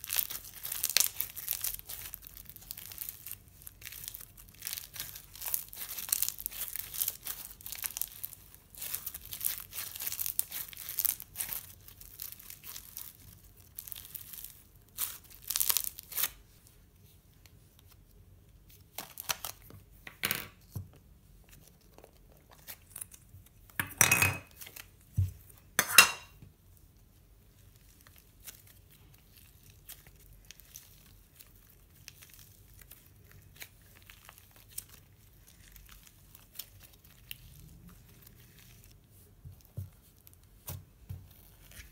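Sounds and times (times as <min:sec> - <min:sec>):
slime squeezed wet crackling: 0:00.0 - 0:16.4
faint slime squishing: 0:00.0 - 0:20.0, 0:20.6 - 0:23.8, 0:26.4 - 0:41.9.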